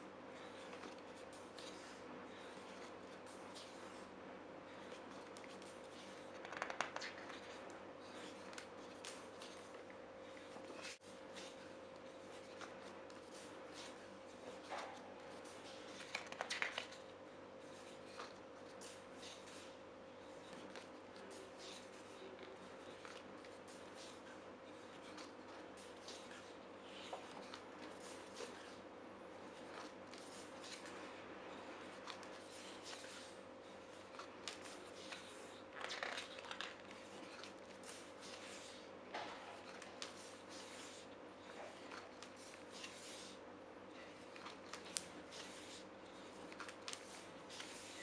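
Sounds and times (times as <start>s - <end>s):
faint steady hum: 0.0s - 48.0s
photobook pages turning: 4.7s - 19.7s, 29.6s - 31.0s, 32.0s - 33.3s, 34.4s - 43.4s, 44.0s - 48.0s.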